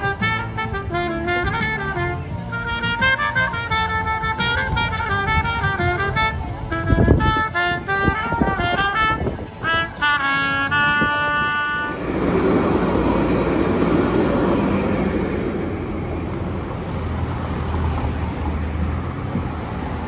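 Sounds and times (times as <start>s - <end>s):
tram wheels rumbling on rail: 0.0s - 20.0s.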